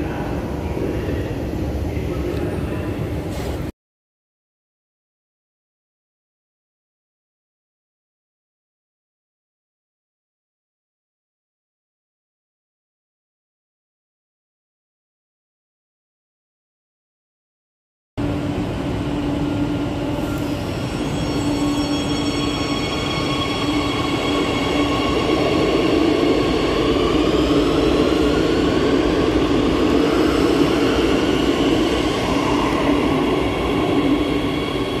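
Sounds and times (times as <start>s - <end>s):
train rumbling on rails: 0.0s - 3.7s, 18.2s - 35.0s.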